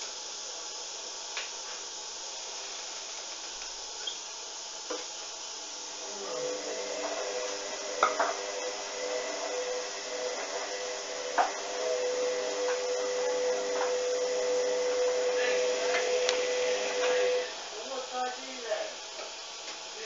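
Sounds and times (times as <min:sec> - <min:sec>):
washing machine motor hum: 0:00.0 - 0:20.0.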